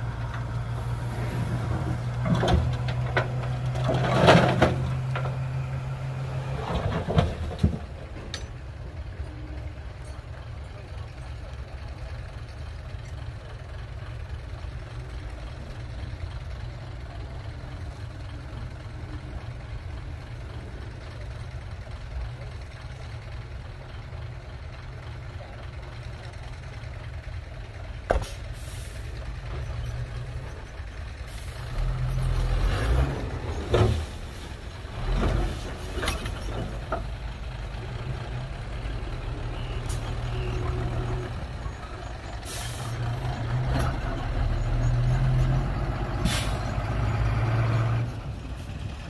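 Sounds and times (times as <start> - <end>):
diesel truck engine running: 0.0 - 49.0
air brake hisses: 28.2 - 29.2, 42.4 - 43.0, 46.2 - 46.7.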